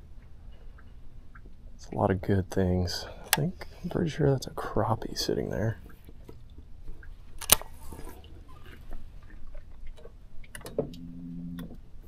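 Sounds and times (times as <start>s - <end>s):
low hum: 10.7s - 12.0s.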